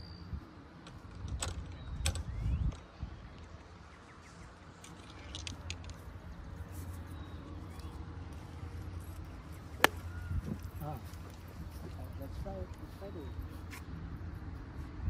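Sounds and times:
wind rumble on microphone: 0.1 - 6.6, 10.0 - 13.0.

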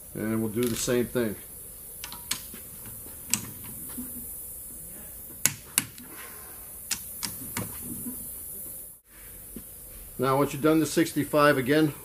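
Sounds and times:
torque wrench clicking: 0.6 - 1.0, 2.0 - 4.2, 6.9 - 7.8.

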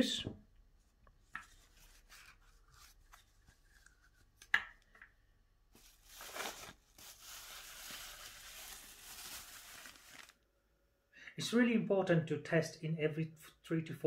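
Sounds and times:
plastic bag rustling: 5.7 - 10.4.

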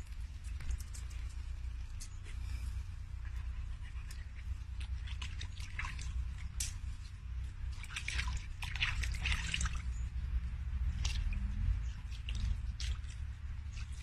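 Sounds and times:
steady low rumble: 0.0 - 14.0
dog splashing in shallow water: 4.7 - 14.0.

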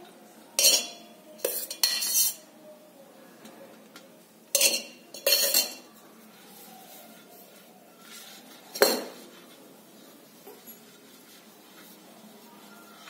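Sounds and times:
metal spoon clinking on dishes: 0.6 - 2.5, 4.5 - 5.9.

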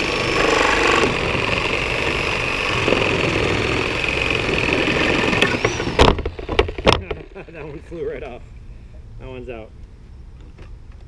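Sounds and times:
reciprocating saw cutting nails: 0.0 - 6.0.

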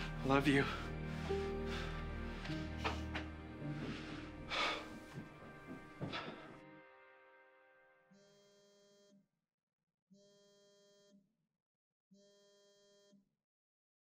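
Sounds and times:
music cue: 0.0 - 8.3.

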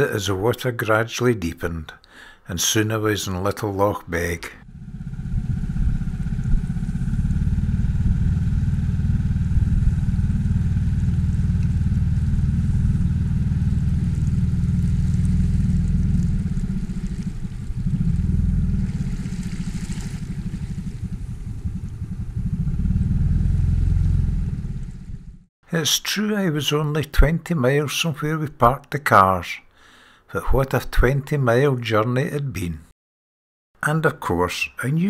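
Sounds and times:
outboard motor running: 4.6 - 25.5.

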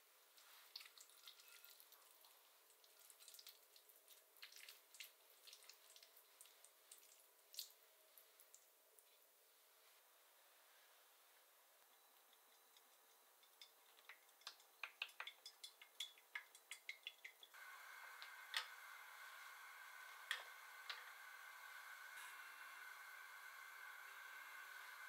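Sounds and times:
small clicks and taps: 11.9 - 17.6
gas burner hissing: 17.5 - 25.0.

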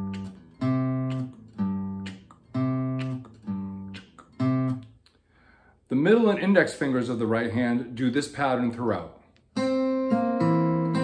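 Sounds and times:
acoustic guitar bass notes: 0.0 - 5.0, 9.6 - 11.0.

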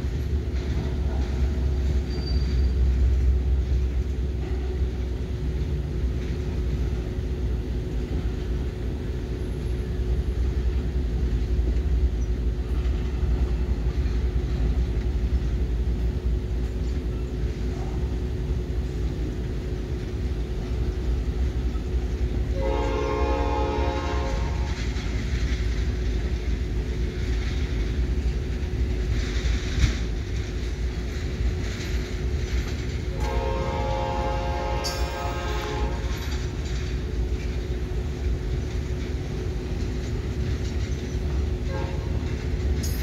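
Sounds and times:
freight train rumbling past: 0.0 - 43.0
train wheel clatter: 0.0 - 43.0
locomotive air horn blast: 22.5 - 24.8, 33.1 - 36.1, 41.7 - 42.2.

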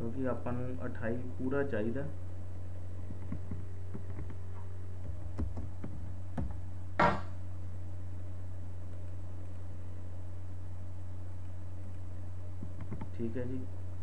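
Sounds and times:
steady low hum: 0.0 - 14.0
computer mouse and keyboard clicks: 3.1 - 4.4, 5.0 - 6.5, 12.6 - 13.1.

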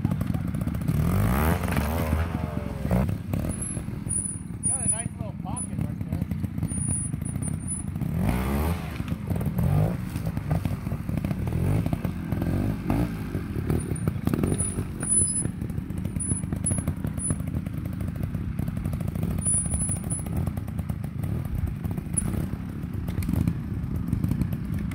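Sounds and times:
motorcycle engine revving: 0.0 - 24.9.

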